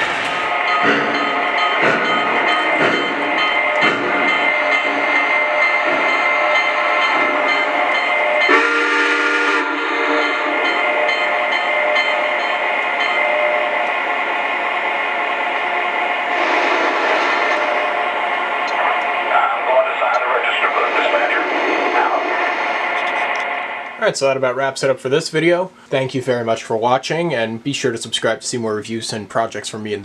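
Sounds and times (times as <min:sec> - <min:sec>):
model locomotive steam chuffs: 0:00.0 - 0:07.8, 0:08.4 - 0:11.5, 0:12.6 - 0:26.1
locomotive engine sounds: 0:00.0 - 0:24.5
train whistle blast: 0:08.4 - 0:10.6, 0:16.4 - 0:17.9.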